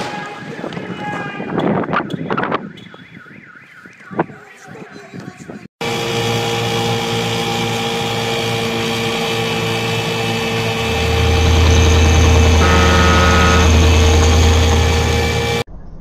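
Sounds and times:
motorboat engine running: 0:05.8 - 0:15.6.

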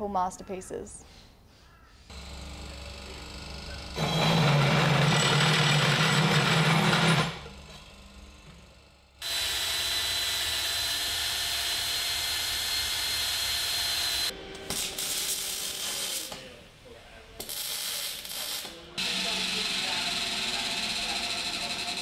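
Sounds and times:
drop saw cutting steel: 0:02.1 - 0:08.6
welder arc crackling: 0:13.4 - 0:16.5, 0:17.4 - 0:19.4.

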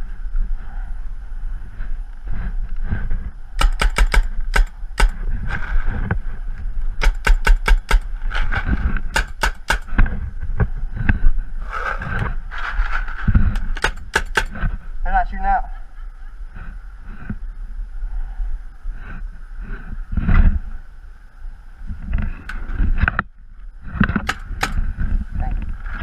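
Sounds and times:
wind rumble on microphone: 0:00.0 - 0:26.0
paintball markers firing: 0:03.6 - 0:05.4, 0:07.0 - 0:10.0, 0:13.5 - 0:14.7, 0:24.2 - 0:24.9.

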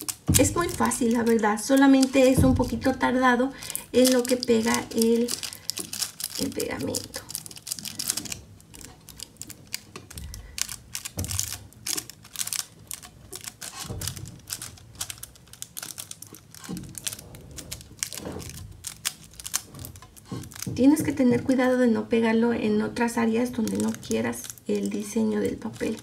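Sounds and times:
foil paper crinkling: 0:00.0 - 0:20.8, 0:23.4 - 0:26.0
soft low bumps: 0:00.3 - 0:03.4.

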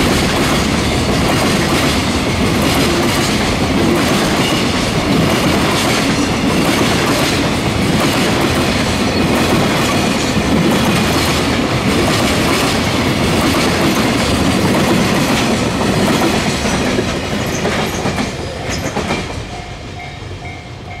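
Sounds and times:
freight train rolling on rails: 0:00.0 - 0:21.0.

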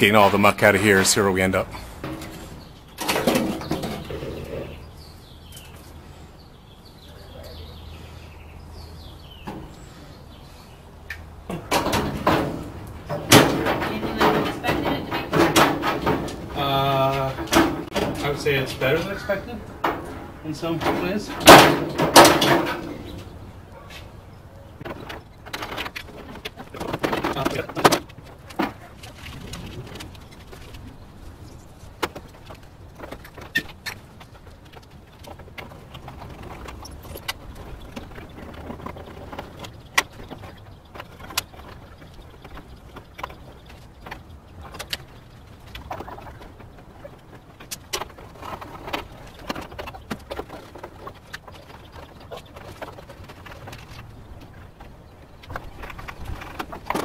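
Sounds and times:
bird cooing: 0:03.6 - 0:05.0.

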